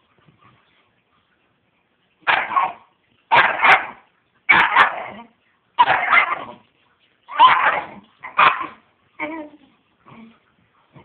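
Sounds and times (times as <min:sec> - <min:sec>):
puppy barking: 0:02.2 - 0:05.2, 0:05.8 - 0:06.6, 0:07.3 - 0:08.8.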